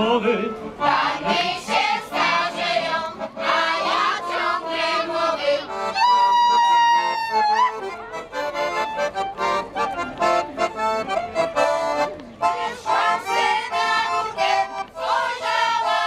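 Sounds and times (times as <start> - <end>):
accordion: 0.0 - 16.0
women singing folk song: 0.5 - 6.5, 12.6 - 16.0.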